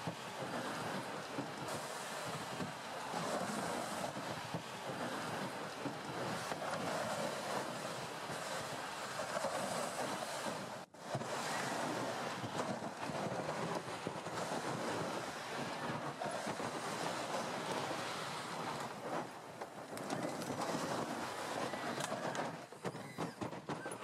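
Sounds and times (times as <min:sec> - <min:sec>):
tracked vehicle crunching over snow: 0:00.0 - 0:24.0.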